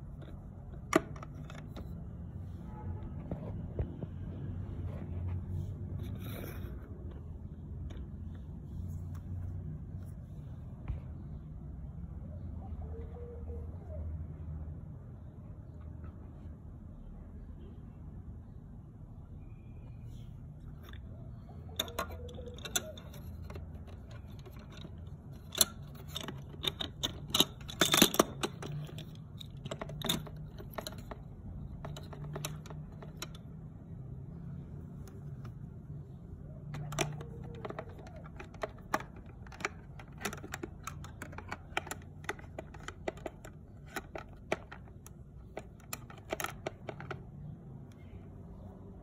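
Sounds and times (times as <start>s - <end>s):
plastic toy pieces clicking: 21.8s - 33.4s, 36.7s - 47.4s.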